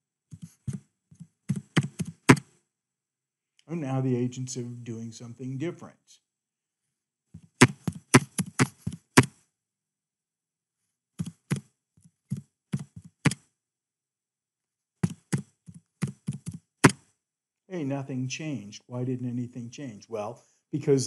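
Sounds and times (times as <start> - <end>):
computer keyboard typing: 16.0 - 16.6.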